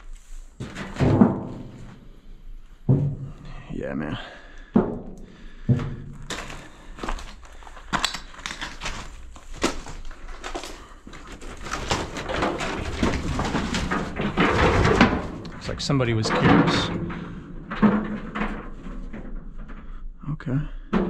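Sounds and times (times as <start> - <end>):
scraping rustle: 6.2 - 19.9.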